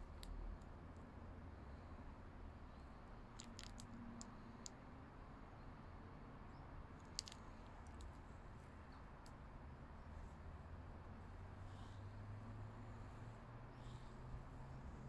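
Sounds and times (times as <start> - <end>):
faint clicks: 2.7 - 4.8, 7.0 - 9.4.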